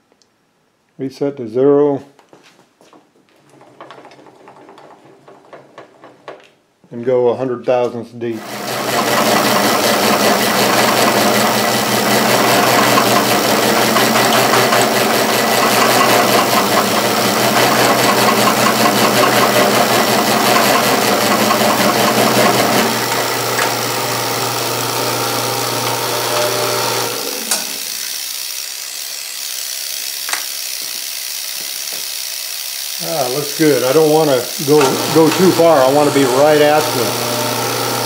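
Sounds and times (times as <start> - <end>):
spindle motor hum: 8.3 - 38.0
milling machine cutting metal: 8.4 - 38.0.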